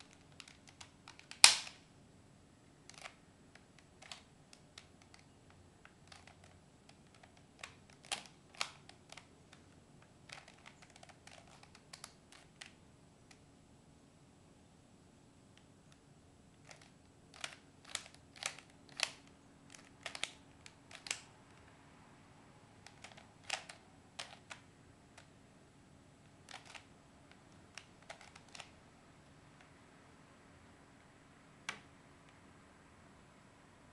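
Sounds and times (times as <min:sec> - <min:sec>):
puzzle pieces clicking: 0:06.0 - 0:09.6, 0:10.3 - 0:12.7, 0:26.5 - 0:26.9.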